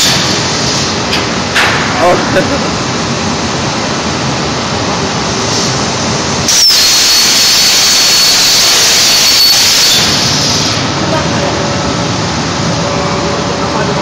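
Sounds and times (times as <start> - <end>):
plasma arc high whine: 0.0 - 3.0, 5.2 - 11.8
plasma torch hissing: 6.4 - 11.0.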